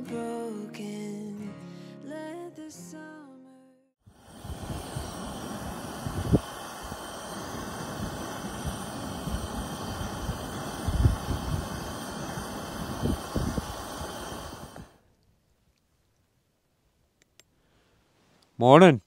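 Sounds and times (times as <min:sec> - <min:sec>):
wind buffeting microphone: 0:04.2 - 0:14.9.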